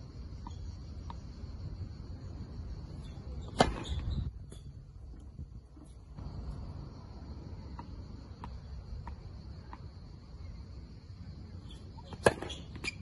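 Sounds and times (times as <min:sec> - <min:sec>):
insects buzzing: 0:00.0 - 0:13.0
racket striking a ball: 0:03.5 - 0:04.1, 0:12.1 - 0:12.8.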